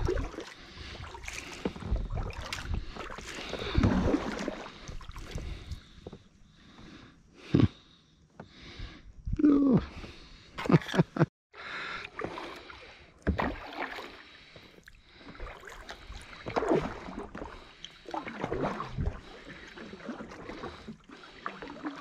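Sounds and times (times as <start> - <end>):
paddle splashes: 0.0 - 5.8, 11.8 - 22.0.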